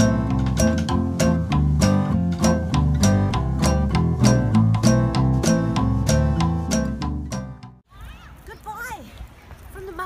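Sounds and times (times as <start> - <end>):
low bass notes: 0.0 - 7.8
plucked guitar music: 0.0 - 7.8.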